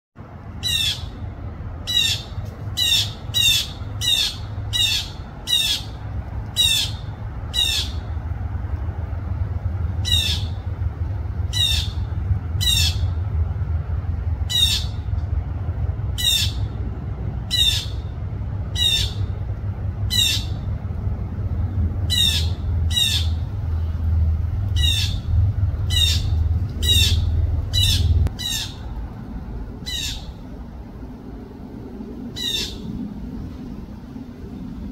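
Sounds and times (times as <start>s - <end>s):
low rumble: 0.2s - 34.9s
jay squawking: 10.0s - 10.6s, 11.5s - 13.2s, 18.8s - 19.4s, 22.1s - 23.5s, 24.7s - 28.8s.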